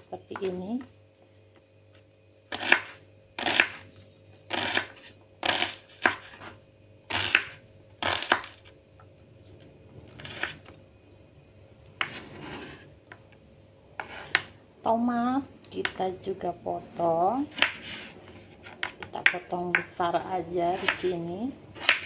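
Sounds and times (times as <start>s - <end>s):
knife cutting onion on board: 2.5s - 3.9s, 4.5s - 8.7s, 10.1s - 10.7s, 12.0s - 12.9s, 14.0s - 14.5s, 17.4s - 20.0s, 20.6s - 22.0s.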